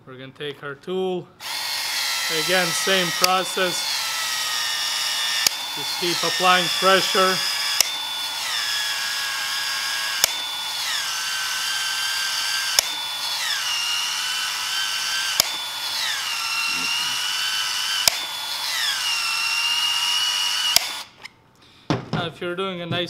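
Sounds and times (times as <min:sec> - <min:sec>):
tool head clicks: 0:01.4 - 0:09.2, 0:10.0 - 0:11.2, 0:11.9 - 0:16.4, 0:17.9 - 0:19.0, 0:20.5 - 0:21.3
expansion tool motor whine: 0:01.4 - 0:21.3.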